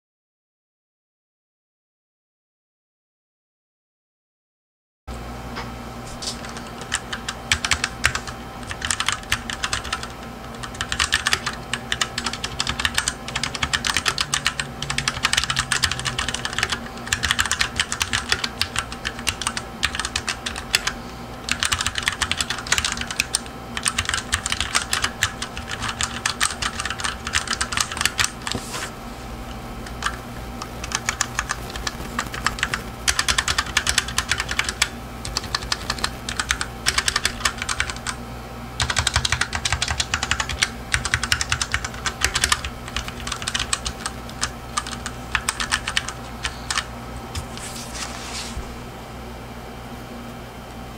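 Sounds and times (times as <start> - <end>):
mechanical keyboard typing: 6.4 - 28.6, 29.8 - 38.2, 38.8 - 46.9.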